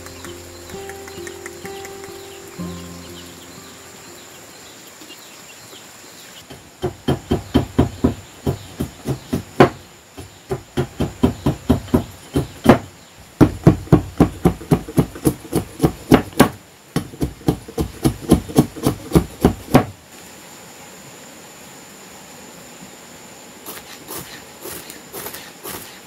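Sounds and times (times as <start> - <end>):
knife chopping wood: 6.5 - 19.9.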